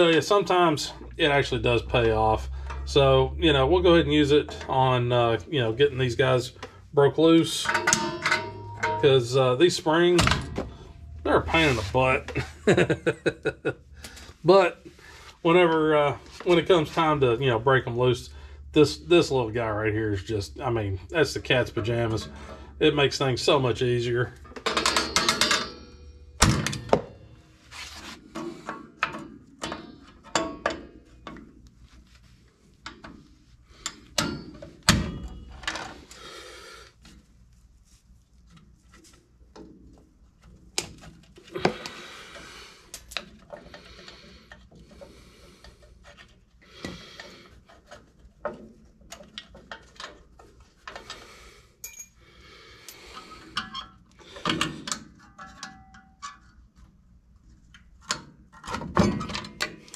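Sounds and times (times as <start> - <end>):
metal scraping and rubbing: 7.2 - 12.8
metal knocks: 7.6 - 9.4.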